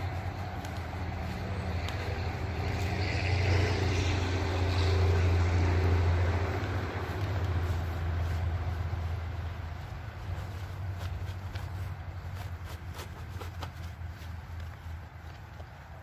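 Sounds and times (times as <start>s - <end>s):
low engine drone: 0.0s - 10.3s
nylon bag rustling: 0.0s - 16.0s.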